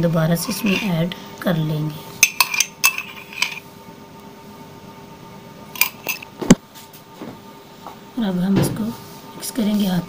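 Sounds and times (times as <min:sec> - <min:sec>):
metal spoon clinking on cup: 0:00.4 - 0:01.0, 0:02.2 - 0:03.6, 0:05.8 - 0:06.2
ghee being scraped: 0:00.4 - 0:01.1.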